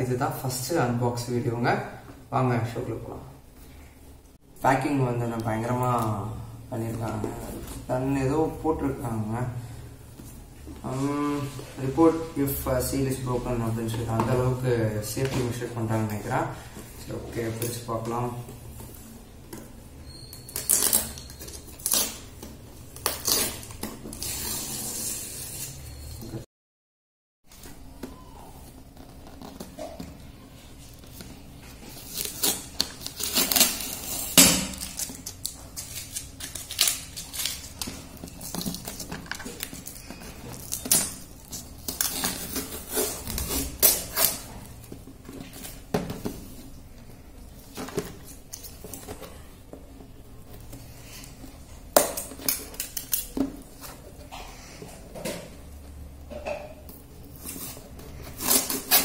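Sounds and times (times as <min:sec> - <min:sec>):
packing tape ripping off cardboard: 0:20.5 - 0:22.3, 0:23.0 - 0:25.8, 0:31.9 - 0:44.5, 0:57.4 - 0:59.0.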